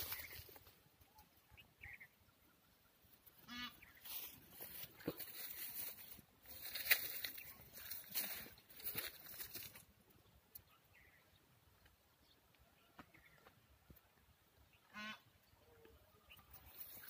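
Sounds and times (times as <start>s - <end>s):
wheat stalks rustling: 0.0s - 0.8s, 3.9s - 9.9s
short honk-like call: 3.5s - 3.8s, 14.9s - 15.2s.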